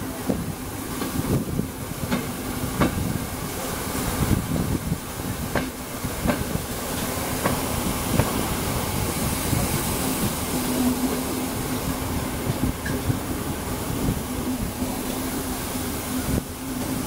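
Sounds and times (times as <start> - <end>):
train wheels rolling on rails: 0.0 - 17.0
rail-joint clicks: 0.1 - 3.3, 5.3 - 11.3, 12.4 - 13.3.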